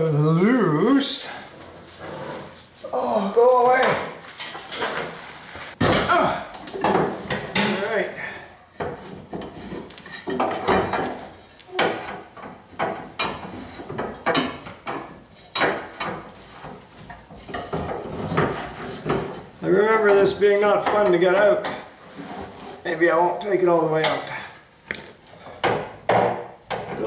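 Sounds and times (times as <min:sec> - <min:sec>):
metallic clanks and knocks: 0:08.8 - 0:19.3.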